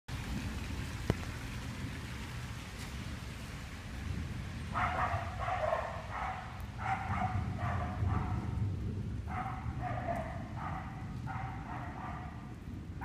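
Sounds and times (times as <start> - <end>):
steady low rumble: 0.1 - 13.0
dog barking: 4.7 - 8.6, 9.3 - 12.6.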